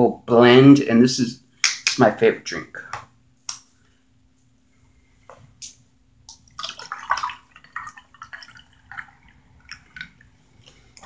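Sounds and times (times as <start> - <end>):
juice pouring into a cup: 6.3 - 10.9.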